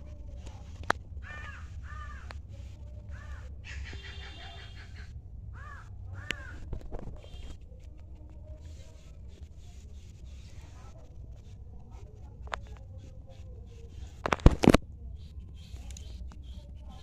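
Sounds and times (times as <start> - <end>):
steady low rumble: 0.0 - 14.2
crow cawing: 1.2 - 2.3, 3.1 - 6.6.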